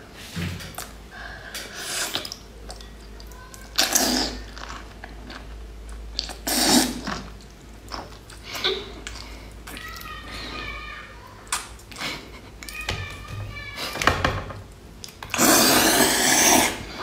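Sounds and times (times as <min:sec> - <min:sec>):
person slurping: 0:01.7 - 0:02.4, 0:03.8 - 0:04.5, 0:06.2 - 0:07.3, 0:15.3 - 0:17.0.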